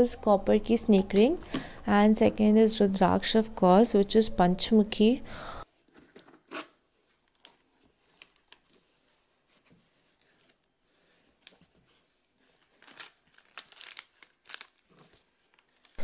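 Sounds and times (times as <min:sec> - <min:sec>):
tissue paper rustling: 0:06.8 - 0:16.0.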